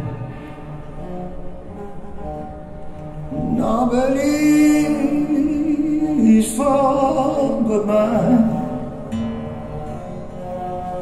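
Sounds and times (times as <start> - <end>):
quiet musical accompaniment: 0.0 - 11.0
man singing wordless notes: 3.3 - 9.1.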